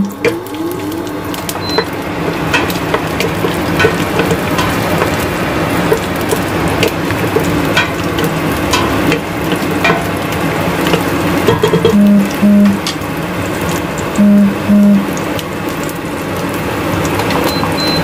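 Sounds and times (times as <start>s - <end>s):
utensil clicking against pan: 0.0s - 12.1s
garlic sizzling in oil: 0.0s - 18.0s.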